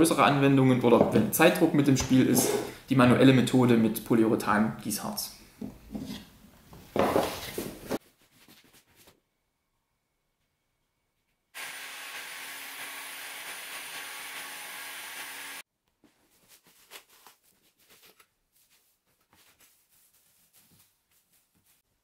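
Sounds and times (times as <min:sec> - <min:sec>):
small electric blower running: 0:11.6 - 0:15.6.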